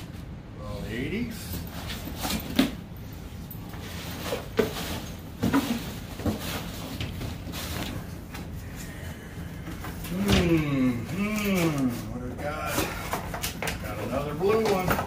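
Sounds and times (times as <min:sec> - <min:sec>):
cardboard boxes knocking and rustling: 0:03.8 - 0:08.5.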